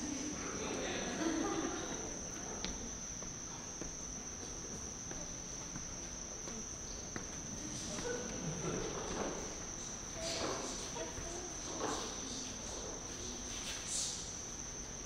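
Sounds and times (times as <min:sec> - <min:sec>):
low room noise: 0:00.0 - 0:15.0
footsteps on wooden stage: 0:02.4 - 0:12.2.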